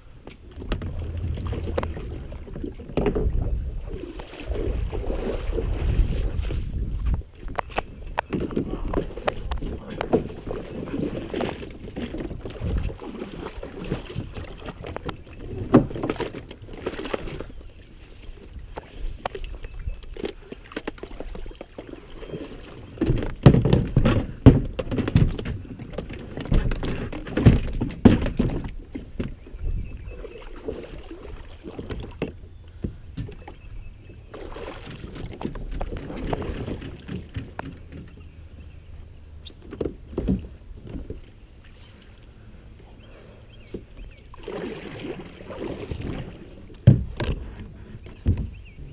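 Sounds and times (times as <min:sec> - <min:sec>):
gear knocking on a kayak: 0:23.0 - 0:29.5.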